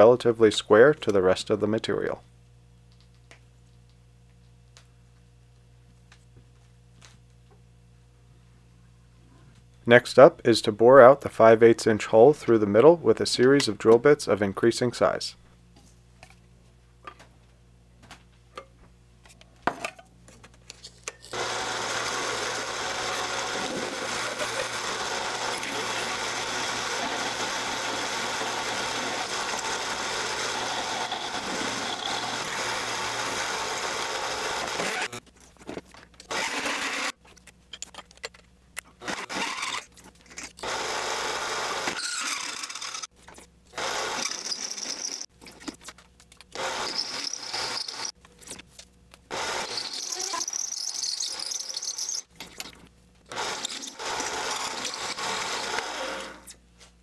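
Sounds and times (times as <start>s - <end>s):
lathe drilling into steel: 21.4s - 35.2s, 43.8s - 45.3s, 46.6s - 48.2s, 49.3s - 52.3s, 53.3s - 56.4s.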